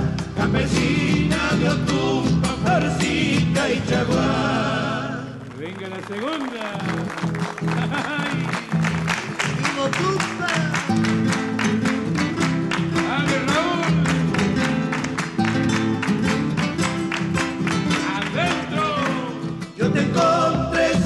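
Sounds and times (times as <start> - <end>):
bass drum beat: 0.0 - 4.7
acoustic guitars strummed: 0.0 - 5.8, 6.9 - 21.0.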